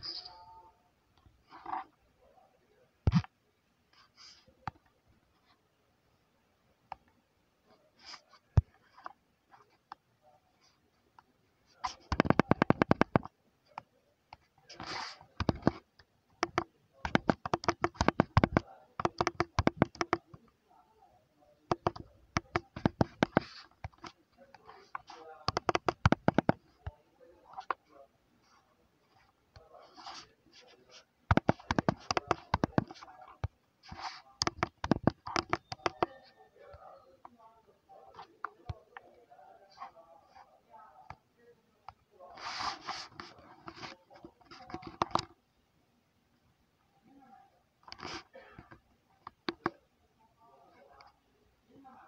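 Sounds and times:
fingers tapping touchscreen: 0.0 - 0.4, 3.0 - 3.3, 11.2 - 20.6, 21.7 - 27.9, 29.2 - 37.4, 42.4 - 45.4, 47.8 - 49.8
phone keyboard clicks: 16.4 - 20.4, 34.4 - 36.2.

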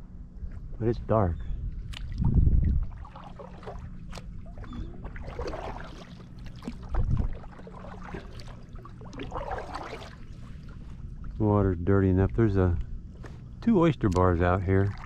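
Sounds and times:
low rumble: 0.0 - 14.8
paddle splashing water: 2.8 - 11.4.

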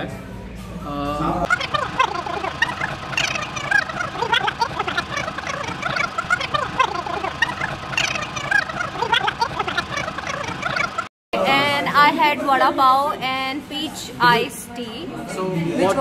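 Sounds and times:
sped-up high-pitched voice chattering: 1.5 - 11.1.

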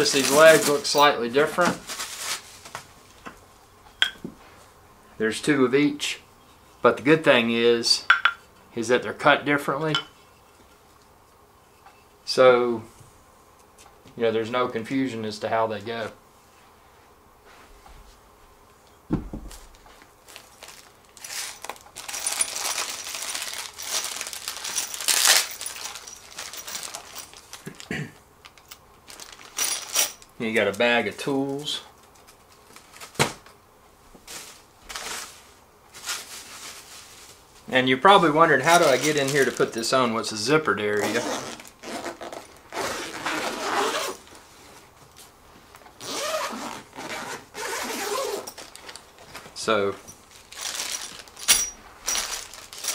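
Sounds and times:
plastic wrap crinkling: 0.0 - 2.9, 19.5 - 30.8, 32.0 - 33.5, 34.2 - 44.4, 45.8 - 52.9
thump: 19.1 - 19.5
zipper pulled open: 41.0 - 44.2, 46.0 - 48.6
metal bolts clinking: 51.4 - 52.9.

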